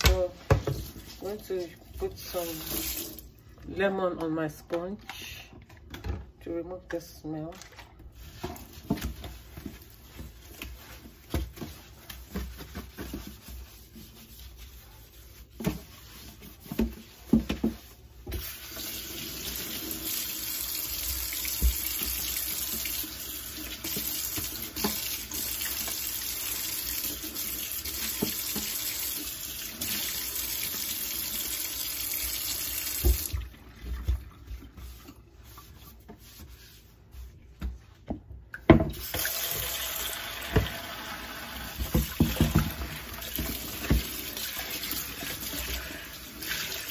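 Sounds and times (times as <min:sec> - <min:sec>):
sponge scrubbing a sink: 0:00.0 - 0:05.1, 0:06.5 - 0:46.9
tap water running into sink: 0:02.3 - 0:03.3, 0:17.3 - 0:35.0, 0:38.6 - 0:46.9.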